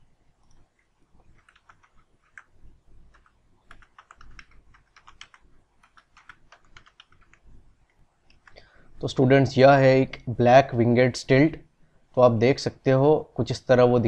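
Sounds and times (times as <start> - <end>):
keyboard keys clicking: 1.3 - 2.5, 3.1 - 7.4.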